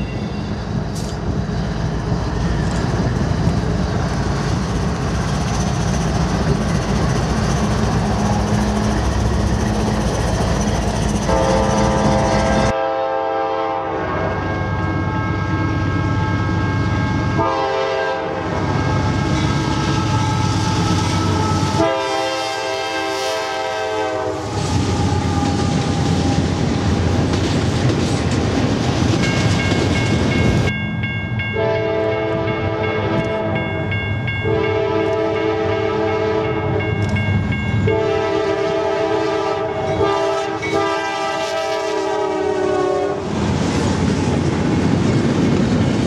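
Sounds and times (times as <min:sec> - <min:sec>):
locomotive engines rumbling: 0:00.0 - 0:46.0
locomotive air horn blasts: 0:11.3 - 0:15.3, 0:17.2 - 0:25.8, 0:31.6 - 0:33.6, 0:34.4 - 0:36.8, 0:37.8 - 0:43.2
freight cars clattering on rails: 0:24.6 - 0:30.7.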